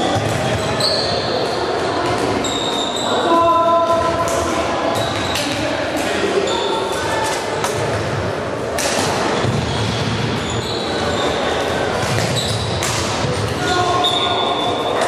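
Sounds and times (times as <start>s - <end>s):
shoes squeaking on sports floor: 0.5s - 1.4s, 2.4s - 3.4s, 9.4s - 13.0s.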